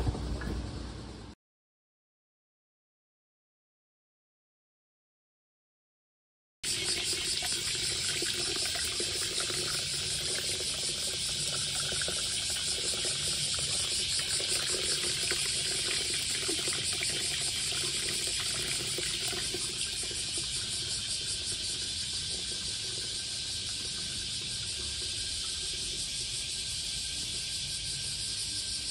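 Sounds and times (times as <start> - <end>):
water pouring into a basin: 6.6 - 27.3.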